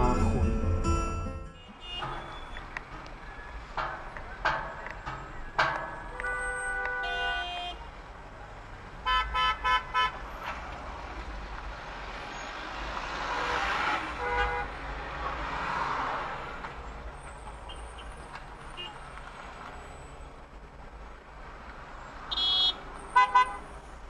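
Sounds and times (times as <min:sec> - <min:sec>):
road noise: 0:00.0 - 0:24.0
car horn honking: 0:01.4 - 0:02.6, 0:06.1 - 0:07.9, 0:09.0 - 0:10.2, 0:13.4 - 0:14.8, 0:22.3 - 0:23.7.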